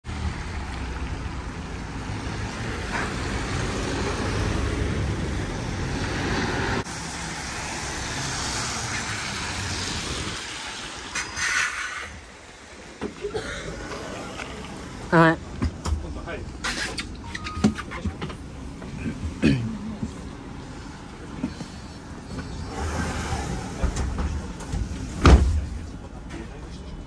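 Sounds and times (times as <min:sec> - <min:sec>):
tyres hissing on wet asphalt: 0:02.4 - 0:15.1, 0:20.5 - 0:24.0.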